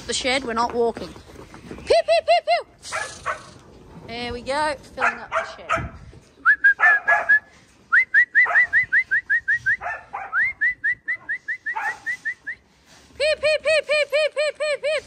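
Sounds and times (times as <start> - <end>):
dog barking: 2.9 - 3.6, 5.0 - 6.0, 6.8 - 7.4, 9.8 - 10.4, 11.7 - 12.1
rising whistles: 6.4 - 12.7.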